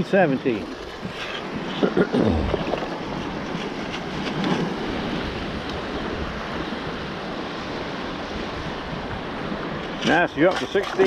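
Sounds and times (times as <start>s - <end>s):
water sloshing and splashing: 0.8s - 5.2s
wind buffeting microphone: 1.0s - 10.1s.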